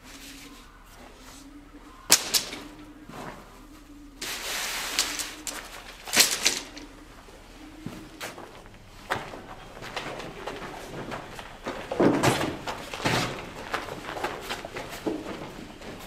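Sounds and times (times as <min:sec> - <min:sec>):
footsteps: 0:00.0 - 0:16.0
tent poles clacking and rattling: 0:02.1 - 0:02.7, 0:04.2 - 0:07.0, 0:08.3 - 0:16.0.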